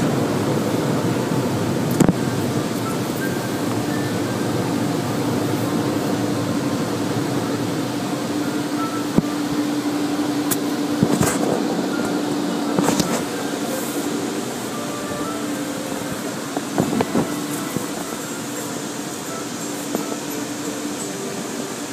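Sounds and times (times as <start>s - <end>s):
constant low hum: 0.0s - 21.9s
fans whirring: 0.0s - 21.9s.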